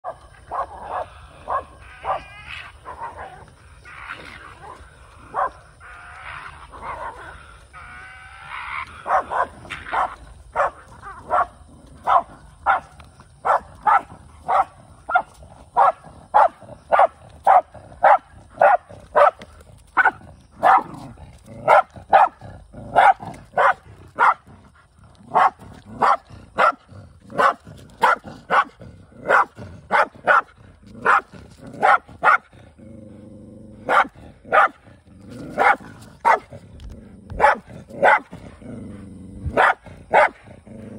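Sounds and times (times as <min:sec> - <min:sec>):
dog barking: 0:00.0 - 0:03.3, 0:05.3 - 0:05.6, 0:09.0 - 0:19.4, 0:20.0 - 0:21.0, 0:21.6 - 0:24.4, 0:25.3 - 0:26.8, 0:27.4 - 0:32.5, 0:33.8 - 0:34.8, 0:35.6 - 0:36.5, 0:37.3 - 0:38.4, 0:39.5 - 0:40.4
dog growling: 0:00.3 - 0:12.8, 0:13.8 - 0:40.9.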